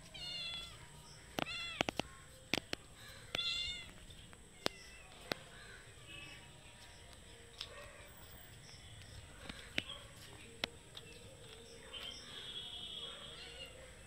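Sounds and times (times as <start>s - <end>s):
sharp clicks: 1.3s - 3.5s
kitten meowing: 3.4s - 4.0s.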